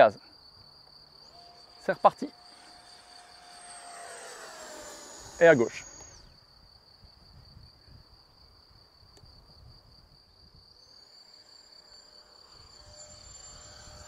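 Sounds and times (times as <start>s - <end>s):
insect chirring: 0.0s - 8.4s, 10.3s - 14.0s
distant electric jet whine: 1.0s - 6.4s, 10.8s - 14.0s.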